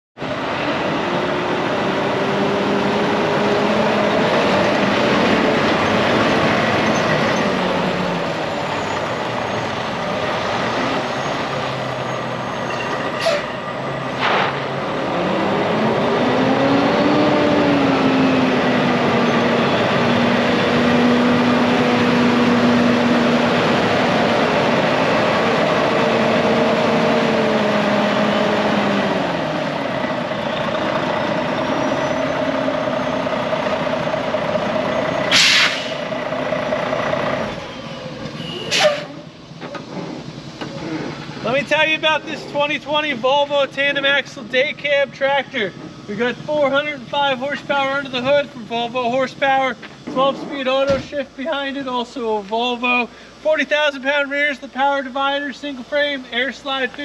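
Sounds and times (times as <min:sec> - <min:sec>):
truck diesel engine: 0:00.2 - 0:57.0
short sharp sounds: 0:13.2 - 0:14.8, 0:35.3 - 0:36.0.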